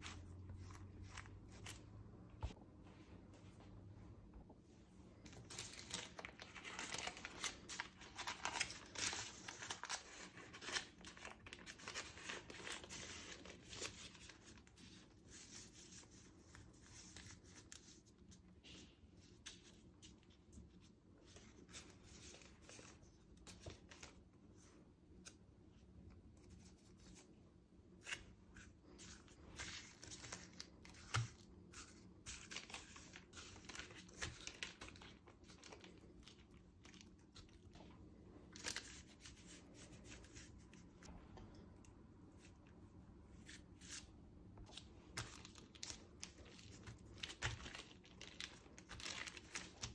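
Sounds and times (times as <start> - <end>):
baking paper crinkling: 5.2 - 18.5, 28.0 - 41.1, 43.4 - 49.9.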